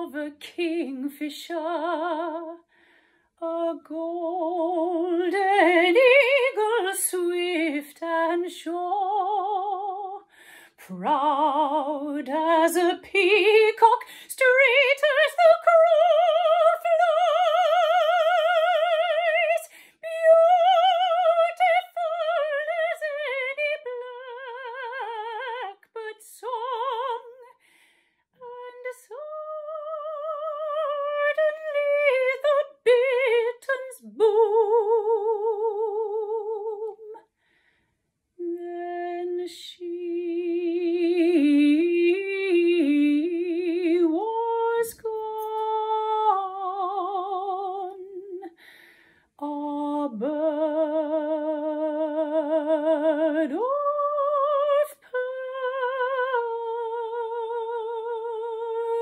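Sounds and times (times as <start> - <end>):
woman singing classical style: 0.0 - 27.7, 28.4 - 37.3, 38.4 - 59.0.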